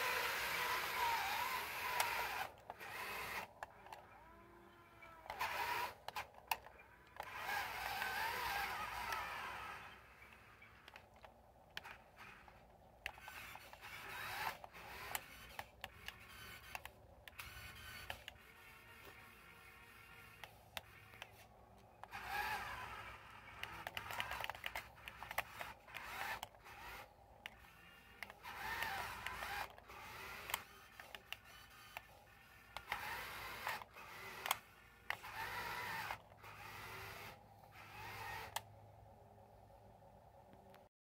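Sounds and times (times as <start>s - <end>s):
toy electric motor whining: 0.0s - 38.8s
sharp clicks: 5.0s - 19.2s, 20.2s - 38.7s.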